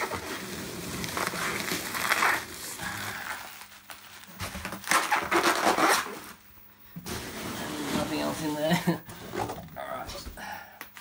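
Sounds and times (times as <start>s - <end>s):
packing peanuts rustling: 0.0s - 5.9s
bubble wrap crinkling: 0.0s - 6.4s.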